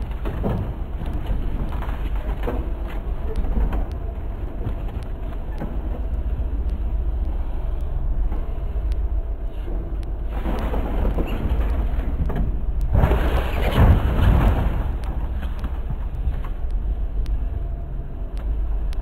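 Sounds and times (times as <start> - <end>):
excavator diesel engine running: 0.0 - 19.0
hydraulics working: 0.0 - 19.0.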